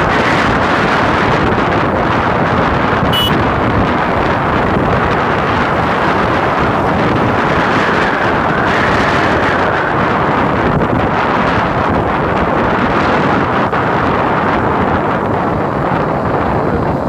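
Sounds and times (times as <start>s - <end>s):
road and engine noise: 0.0s - 17.0s
wind buffeting microphone: 0.0s - 17.0s
brief high tone: 3.1s - 3.4s.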